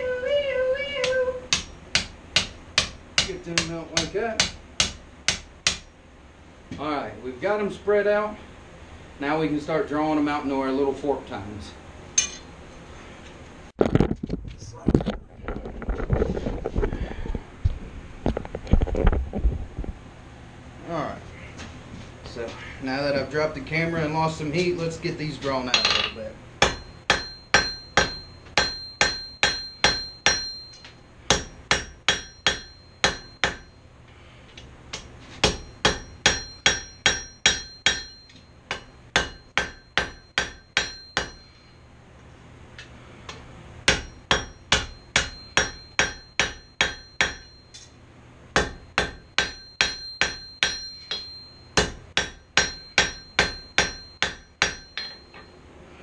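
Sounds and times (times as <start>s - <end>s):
hammer striking steel on anvil: 1.5s - 5.9s, 12.2s - 12.5s, 25.7s - 33.8s, 34.9s - 41.7s, 43.3s - 48.0s, 48.6s - 55.6s.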